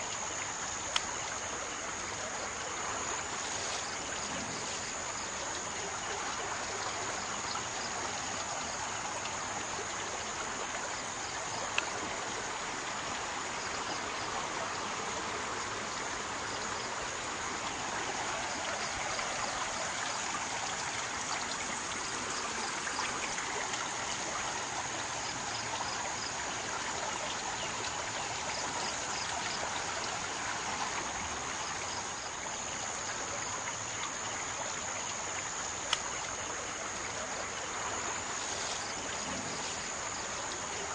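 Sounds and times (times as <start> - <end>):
flooded river rushing: 35.1 - 40.9.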